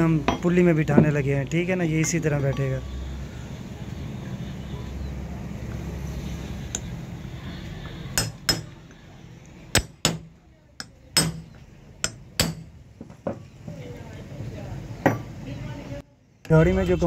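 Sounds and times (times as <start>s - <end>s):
hammer striking steel pipe: 8.2s - 8.8s, 9.8s - 12.8s.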